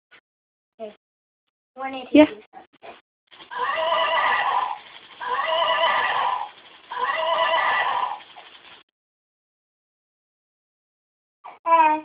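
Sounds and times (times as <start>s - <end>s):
recorded horse neighing from speaker: 3.5s - 8.2s.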